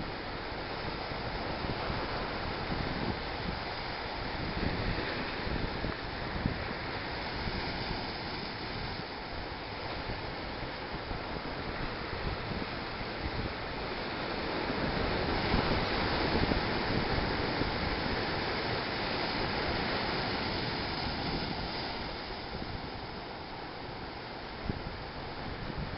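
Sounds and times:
surf breaking against rocks: 0:15.0 - 0:23.6.

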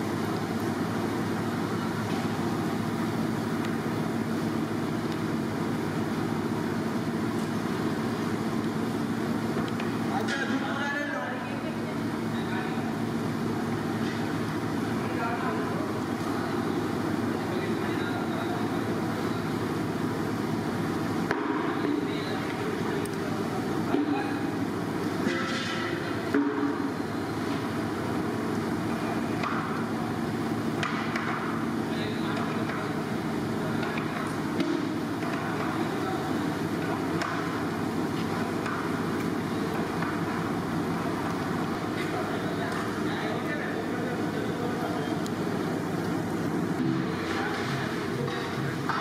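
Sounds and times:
low rumbling background noise: 0:00.0 - 0:49.0
faint voices: 0:41.7 - 0:49.0.

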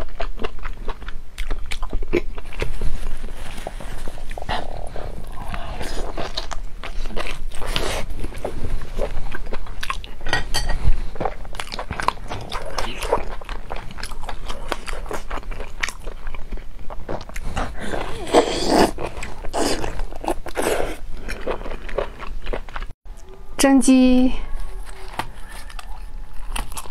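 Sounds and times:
chewing: 0:00.0 - 0:23.4, 0:24.5 - 0:26.9
crunchy bites: 0:24.9 - 0:26.9.

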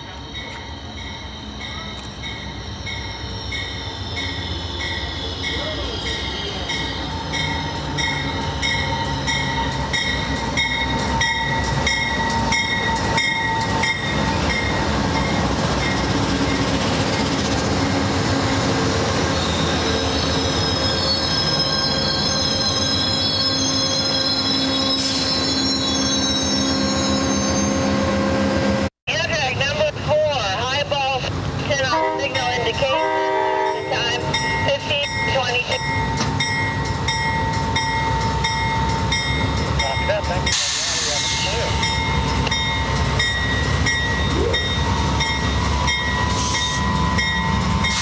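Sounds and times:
locomotive bell ringing: 0:00.3 - 0:17.2, 0:31.9 - 0:48.0
wheel and brake squeal: 0:19.4 - 0:27.9.

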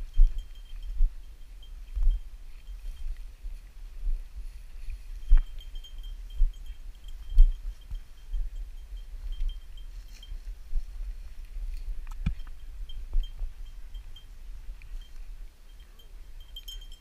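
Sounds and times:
footsteps through dry grass: 0:00.0 - 0:15.4
faint high-pitched beeping: 0:05.2 - 0:10.5.

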